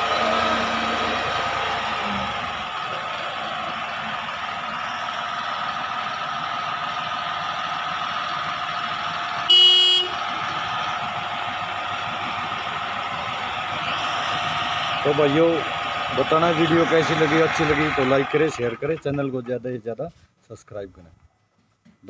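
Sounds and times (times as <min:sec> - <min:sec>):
tractor diesel engine running: 0:00.0 - 0:19.9
tractor horn toot: 0:09.4 - 0:10.4.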